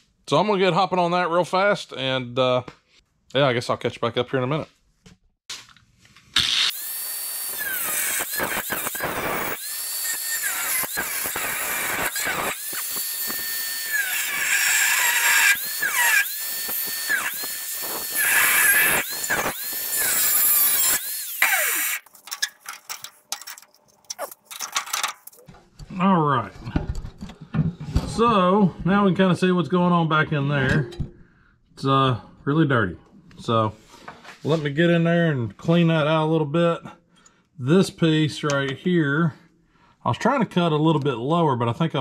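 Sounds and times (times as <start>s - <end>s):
harsh metal-cutting rasp: 6.4s - 22.1s
rotary cut-off tool whine: 6.4s - 22.1s.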